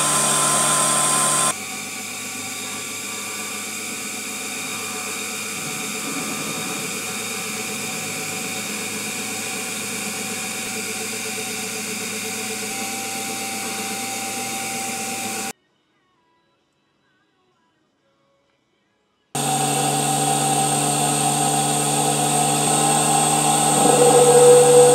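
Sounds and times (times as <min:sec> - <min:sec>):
drill press motor whirring: 0:00.0 - 0:15.5, 0:19.4 - 0:24.9
faint high whine: 0:19.4 - 0:24.9.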